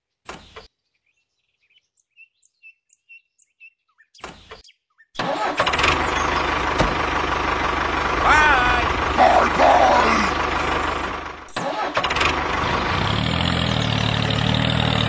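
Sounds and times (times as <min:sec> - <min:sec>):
small bird chirps: 0:00.4 - 0:05.2
tractor engine running: 0:05.2 - 0:15.0.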